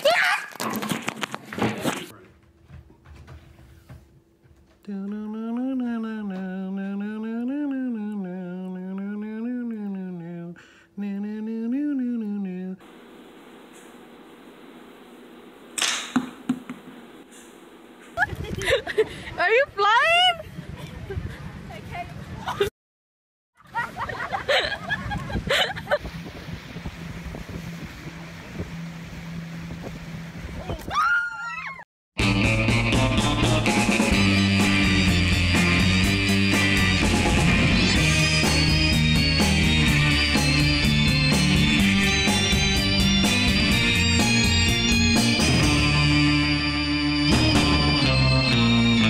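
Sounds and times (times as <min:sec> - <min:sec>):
hum-like vocal tone: 0:04.8 - 0:12.8
wind noise on microphone: 0:18.2 - 0:22.7, 0:24.6 - 0:31.0
boat motor humming: 0:26.0 - 0:30.6.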